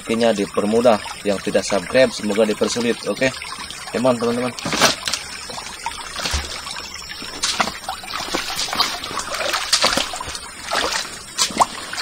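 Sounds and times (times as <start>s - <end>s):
stream trickling: 0.0s - 12.0s
footsteps splashing through water: 6.1s - 12.0s.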